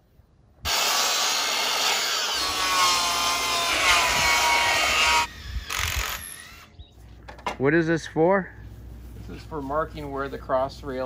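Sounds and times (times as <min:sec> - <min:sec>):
miter saw cutting wood: 0:00.7 - 0:06.7.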